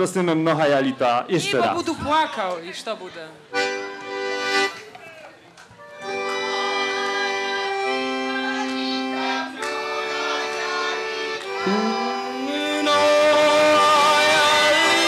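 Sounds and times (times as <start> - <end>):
accordion chords: 3.5 - 4.9, 5.8 - 15.0
wavering sung or fiddled notes: 7.3 - 15.0.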